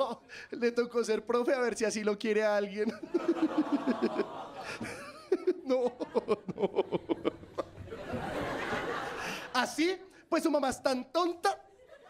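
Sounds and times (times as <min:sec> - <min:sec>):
laughter in rhythmic bursts: 0:02.9 - 0:09.6, 0:11.8 - 0:12.0.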